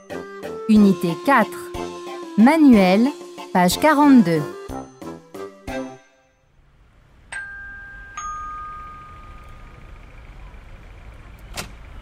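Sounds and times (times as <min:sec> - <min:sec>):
faint low background noise: 0:06.0 - 0:12.0
two-tone doorbell chime: 0:07.3 - 0:10.0.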